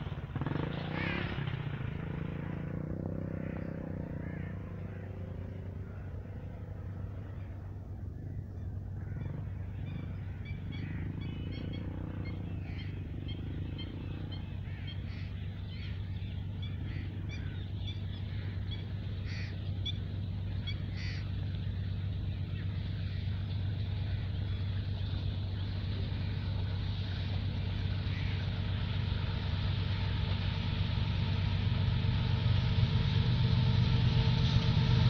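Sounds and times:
distant locomotive drone: 0.0s - 35.0s
bird chirps: 9.3s - 21.4s.

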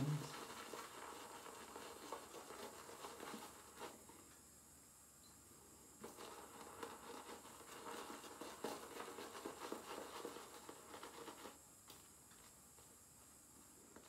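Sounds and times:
shaving brush lathering: 0.0s - 4.0s, 6.0s - 11.6s.

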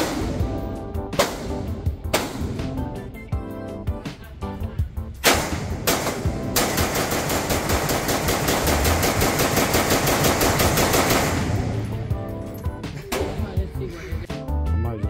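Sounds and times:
rifle shots: 0.0s - 2.8s, 5.2s - 12.2s
rapid rifle fire: 5.2s - 12.1s.

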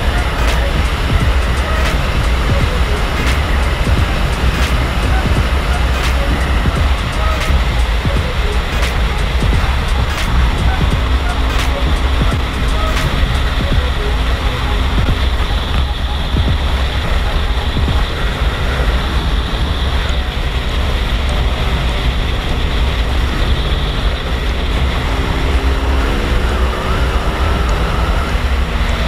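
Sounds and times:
motorcycle engine: 0.0s - 29.0s
tyre noise: 0.0s - 29.0s
wind buffeting microphone: 0.0s - 29.0s.

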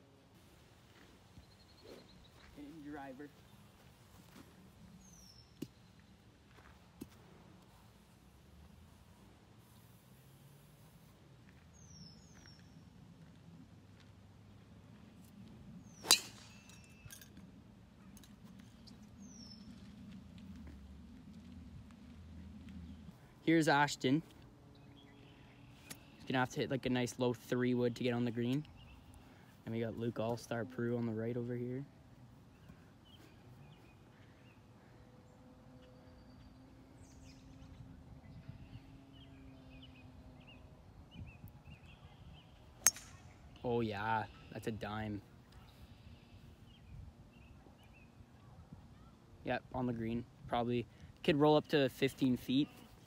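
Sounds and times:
faint bird chirps: 1.3s - 3.6s, 35.8s - 44.8s
golf driver hitting ball: 16.0s - 16.8s, 42.8s - 43.2s.

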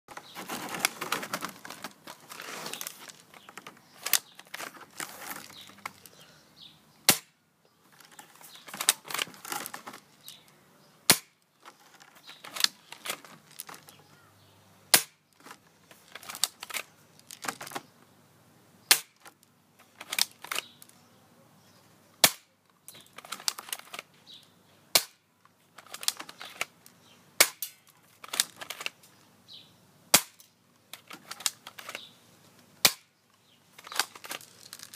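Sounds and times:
airsoft pistol shots: 11.1s - 11.4s
small clicks and rattles: 11.6s - 14.0s, 22.9s - 24.1s, 25.4s - 27.0s, 33.8s - 34.9s.

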